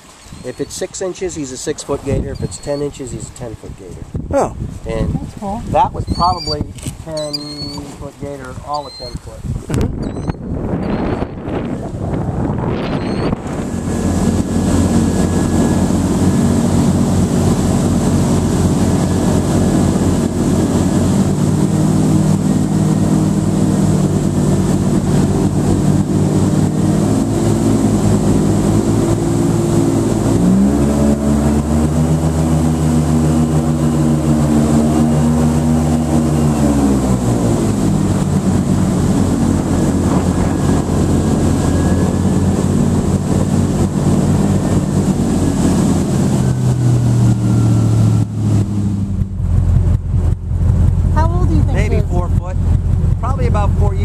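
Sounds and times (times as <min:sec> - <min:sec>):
airboat engine and propeller: 0:00.0 - 0:54.0.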